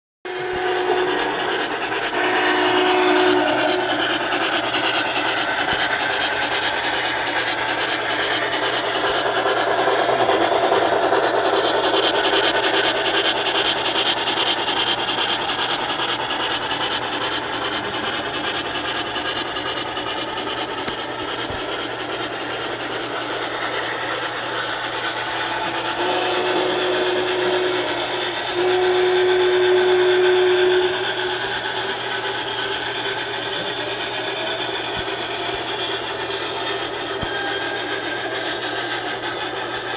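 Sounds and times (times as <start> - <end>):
steam whistle: 0.3 - 6.2, 25.3 - 39.9
model train running on track: 0.3 - 39.9.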